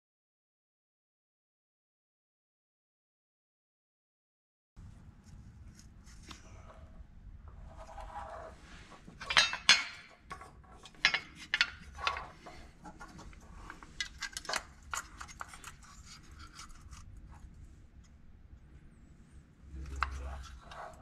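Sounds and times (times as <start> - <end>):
metal parts clicking and knocking: 9.2 - 16.8.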